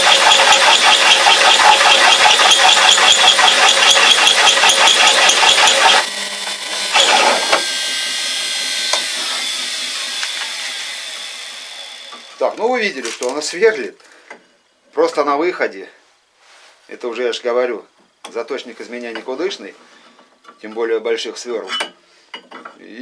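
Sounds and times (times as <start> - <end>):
drill press running freely: 0.0 - 13.4
drill press cutting steel: 0.0 - 13.5
drill bit snatching: 0.0 - 13.6.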